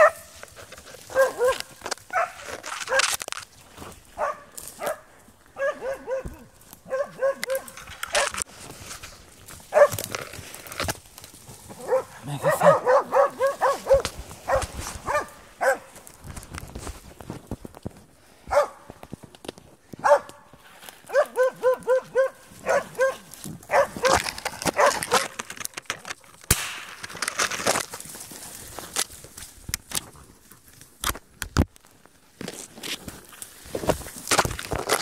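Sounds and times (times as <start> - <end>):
dog barking: 0.0 - 0.3, 1.1 - 3.0, 4.2 - 8.4, 9.7 - 10.0, 11.8 - 15.9, 18.5 - 18.8, 20.0 - 20.4, 21.1 - 25.2.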